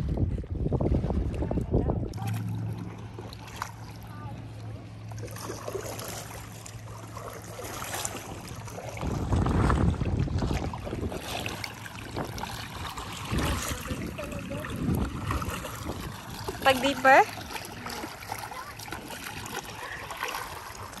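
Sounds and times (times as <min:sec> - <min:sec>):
wind on microphone: 0:00.0 - 0:04.4, 0:07.9 - 0:16.8
paddle splashing in water: 0:00.0 - 0:21.0.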